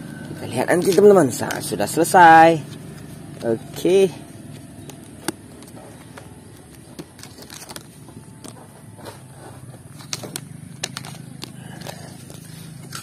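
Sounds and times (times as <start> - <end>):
low background hum: 0.0 - 13.0
plastic track pieces clattering: 10.0 - 11.9.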